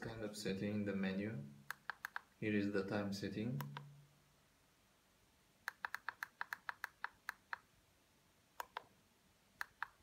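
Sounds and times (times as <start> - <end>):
push buttons clicking: 1.7 - 2.3, 5.7 - 7.7, 8.6 - 8.9.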